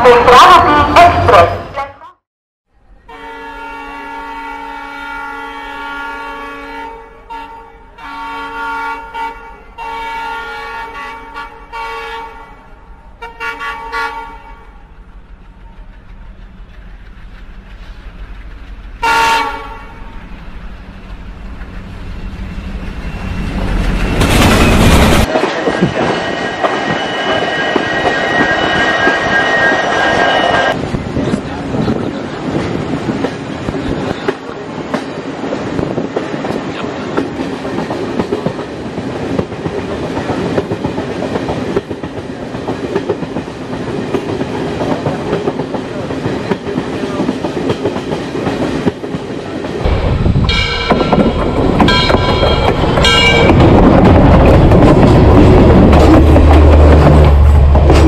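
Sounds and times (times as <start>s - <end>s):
train horn blasts: 3.0s - 12.6s, 13.2s - 14.8s, 19.0s - 20.2s, 50.5s - 53.6s
train wheels clattering on rails: 23.0s - 58.0s.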